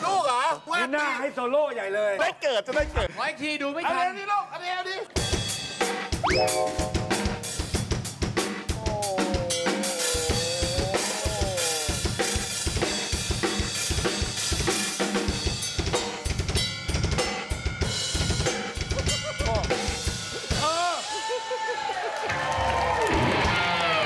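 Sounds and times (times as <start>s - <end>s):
drum kit solo: 5.2s - 21.0s
wavering held note: 6.2s - 7.8s.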